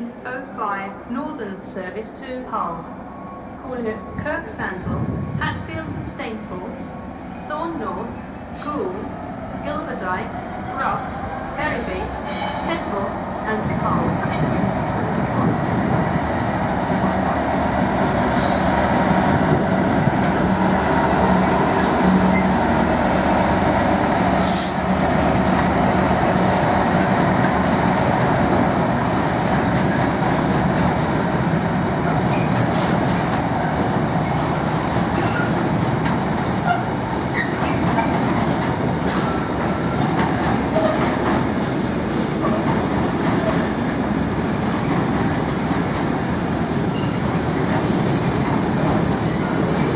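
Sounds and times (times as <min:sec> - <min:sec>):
train wagons rolling past: 0:10.4 - 0:49.9.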